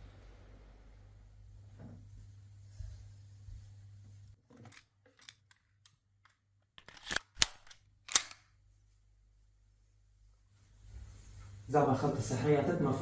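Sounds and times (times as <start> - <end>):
pistol slide clacking: 6.8 - 8.5.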